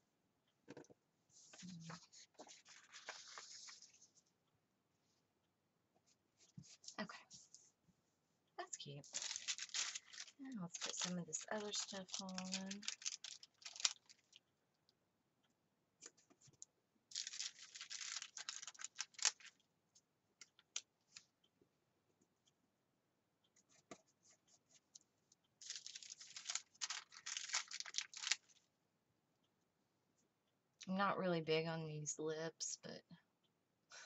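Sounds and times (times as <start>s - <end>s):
scratchy paper rustling: 1.4s - 4.2s, 9.0s - 14.4s, 16.1s - 19.6s, 25.6s - 28.5s.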